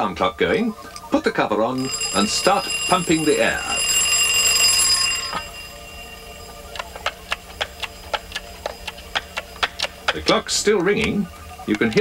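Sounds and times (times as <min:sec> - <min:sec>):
alarm clock ringing: 0:01.7 - 0:10.1.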